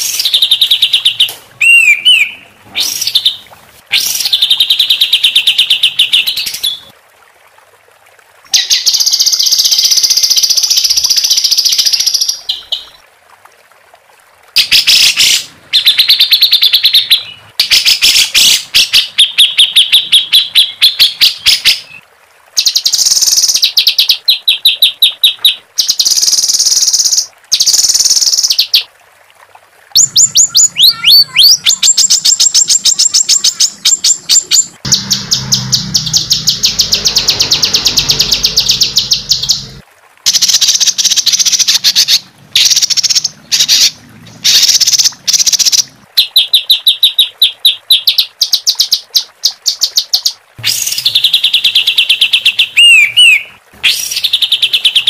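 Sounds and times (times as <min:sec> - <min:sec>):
songbird singing harsh trills: 0:00.0 - 0:03.4, 0:30.0 - 0:40.5, 0:50.6 - 0:55.0.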